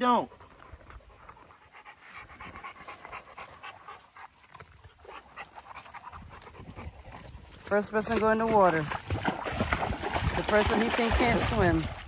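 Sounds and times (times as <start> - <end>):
dog panting: 0.2 - 8.7.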